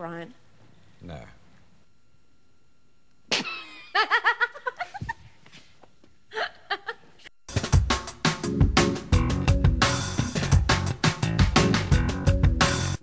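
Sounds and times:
people laughing: 3.6s - 5.2s
music with drums: 7.5s - 13.0s.

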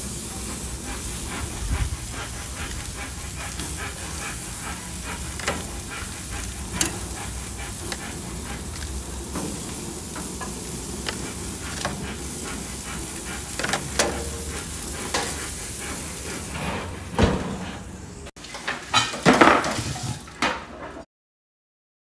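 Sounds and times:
steaks sizzling on grill: 0.0s - 17.1s.

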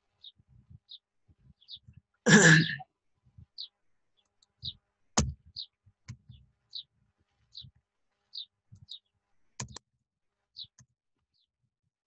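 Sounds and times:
keyboard and mouse clicks: 9.6s - 9.8s.

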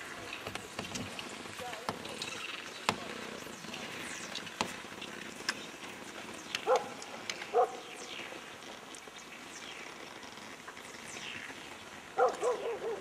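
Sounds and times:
dog barking: 6.6s - 7.9s, 12.2s - 13.0s.

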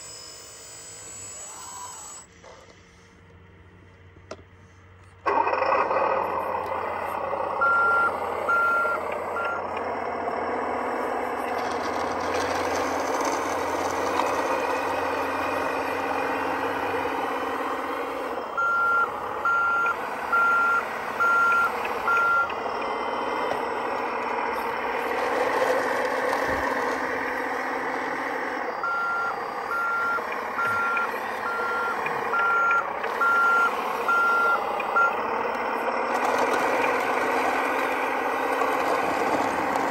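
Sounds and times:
reversing alarm beeping: 0.0s - 2.3s, 6.8s - 11.6s, 13.2s - 25.5s, 26.5s - 38.4s
toy wheel loader running: 0.0s - 2.7s, 5.2s - 39.9s.

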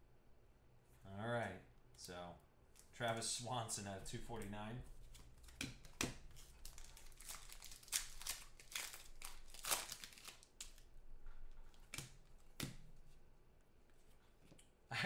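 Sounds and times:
foil wrappers crinkling: 6.3s - 10.9s.

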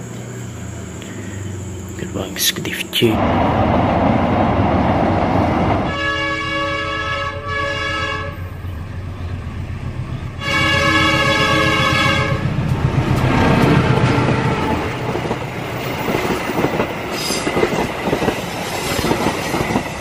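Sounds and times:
train engine rumble: 0.0s - 20.0s
locomotive air horn blasts: 5.8s - 8.6s, 10.4s - 12.6s.

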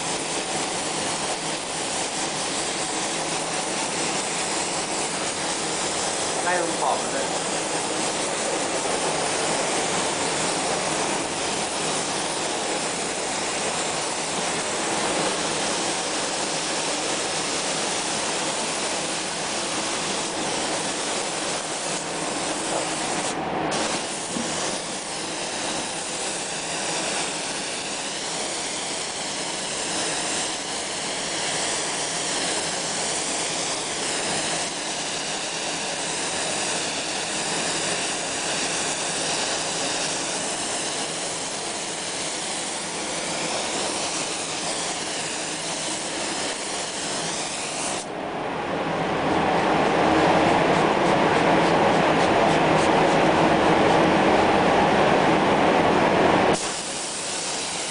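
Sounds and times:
spray gun hissing: 0.0s - 48.1s, 56.5s - 57.9s.

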